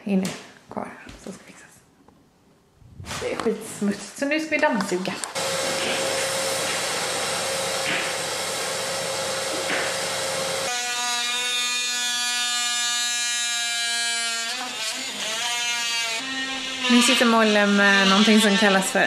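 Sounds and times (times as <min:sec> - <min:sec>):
vacuum cleaner running: 0:05.3 - 0:10.7
oscillating multi-tool buzzing: 0:10.6 - 0:19.0.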